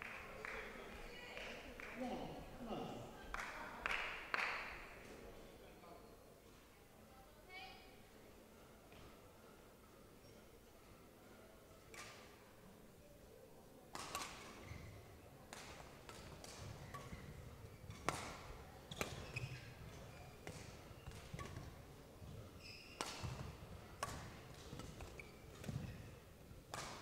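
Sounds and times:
shoes squeaking on court: 0:14.5 - 0:15.2, 0:16.1 - 0:26.4
shuttlecock racket hits: 0:20.5 - 0:21.8, 0:23.0 - 0:26.0, 0:26.7 - 0:27.0.

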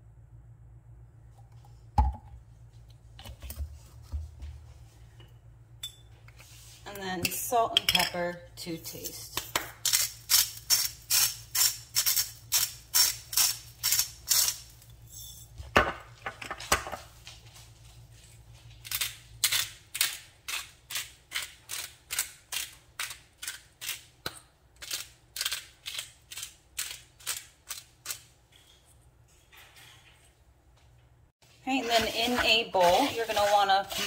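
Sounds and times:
spice grinder grinding: 0:09.8 - 0:15.4, 0:31.8 - 0:34.0.

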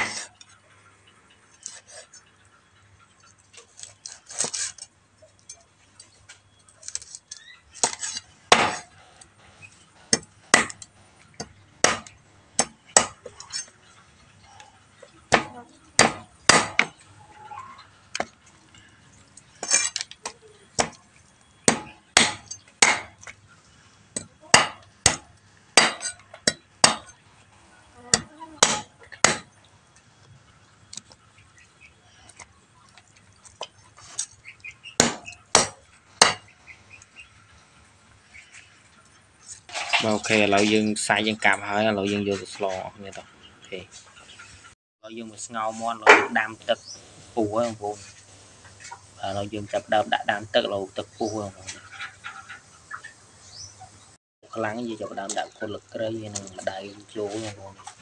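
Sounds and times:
knife chopping on wooden block: 0:15.3 - 0:16.9, 0:24.2 - 0:27.0, 0:28.2 - 0:29.5, 0:35.0 - 0:36.4.

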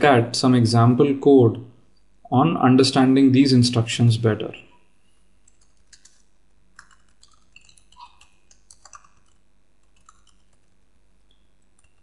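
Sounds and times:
keyboard keystrokes: 0:06.8 - 0:10.7.

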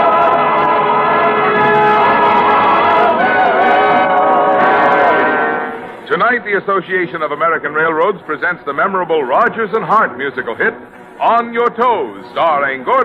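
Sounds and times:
choir singing held chords: 0:00.0 - 0:06.0
orchestra playing: 0:00.0 - 0:06.1.

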